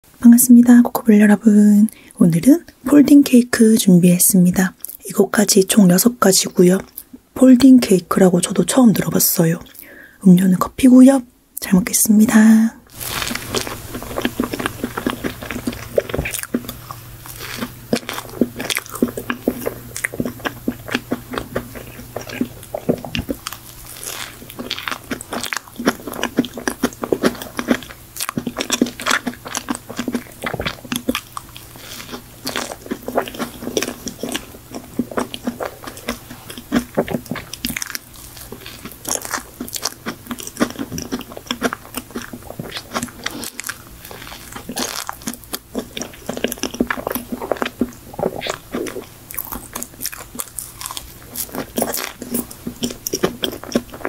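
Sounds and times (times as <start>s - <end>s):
biting and chewing cake: 12.4s - 54.0s.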